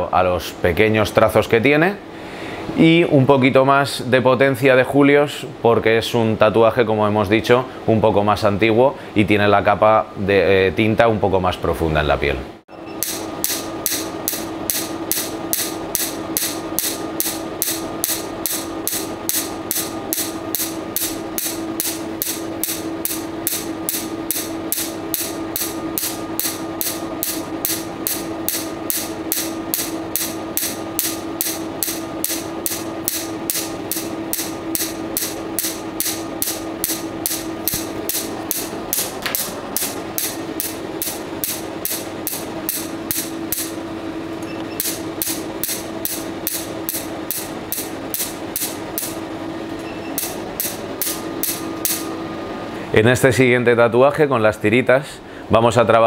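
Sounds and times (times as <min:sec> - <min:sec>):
steady hum: 0:00.0 - 0:56.0
laser pulse snaps: 0:13.0 - 0:43.8, 0:44.8 - 0:49.2, 0:50.2 - 0:52.1.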